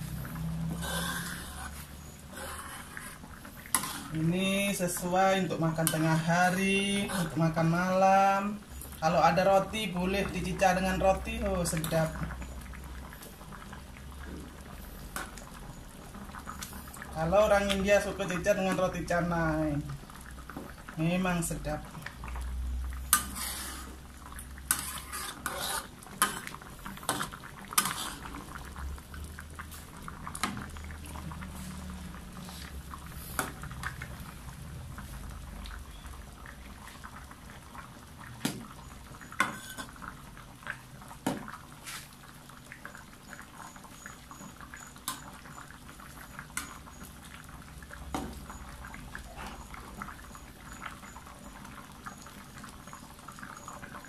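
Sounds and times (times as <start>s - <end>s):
metal ladle scraping a wok: 0.0s - 4.2s, 23.1s - 24.0s, 24.7s - 26.5s, 27.8s - 28.2s, 39.4s - 39.9s
curry bubbling: 0.0s - 54.0s.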